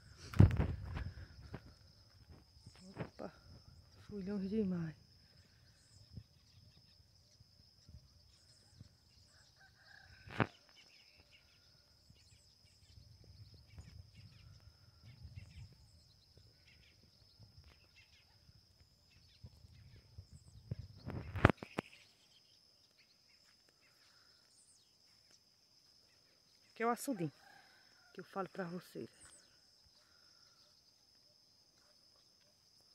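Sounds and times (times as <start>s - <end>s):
distant rooster crowing: 9.3s - 10.7s
birds chirping: 10.8s - 25.4s.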